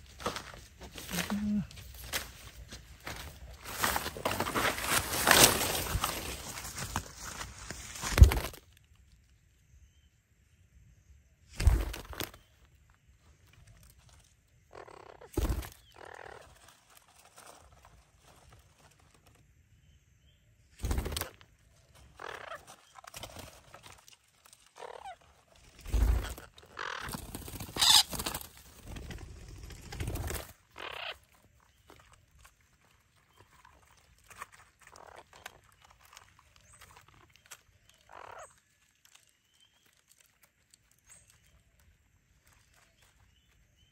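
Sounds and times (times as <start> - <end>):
noisy scuffling: 0.0 - 8.1
harsh bird calls: 25.9 - 28.4.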